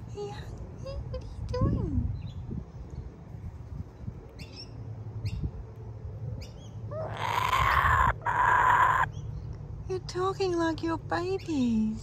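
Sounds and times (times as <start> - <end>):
kookaburra raspy calls: 6.9 - 9.1.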